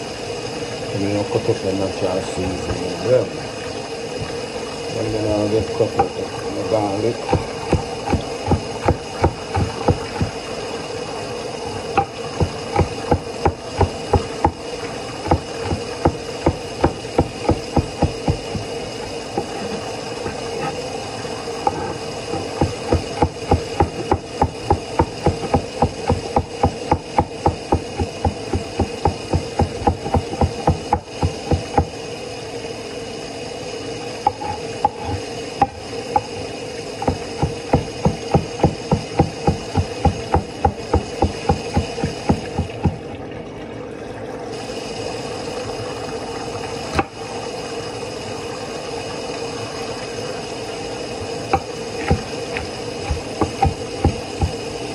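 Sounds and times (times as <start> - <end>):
steady hum: 0.0 - 54.9
knife chopping on wooden board: 7.3 - 10.4, 22.4 - 31.9.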